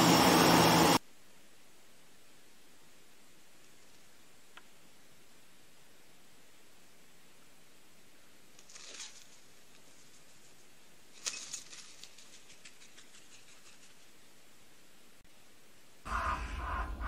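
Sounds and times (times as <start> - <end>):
steady faint hiss: 1.0 - 16.1
faint wing flaps and rustling: 8.5 - 14.2.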